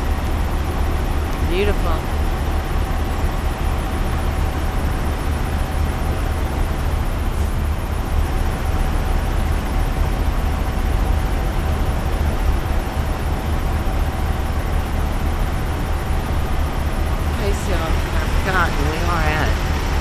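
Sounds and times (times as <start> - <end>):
faint steady whine: 0.0 - 20.0
road traffic rumble: 0.0 - 20.0
truck engines idling: 0.0 - 20.0.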